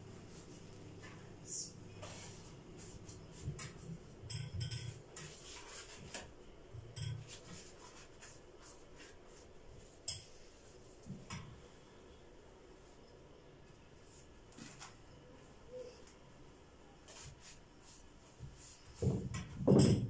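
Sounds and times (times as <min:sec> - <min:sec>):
pastry brush rustling on dough: 0:00.0 - 0:04.2, 0:04.9 - 0:06.4, 0:07.2 - 0:11.1, 0:17.0 - 0:19.1.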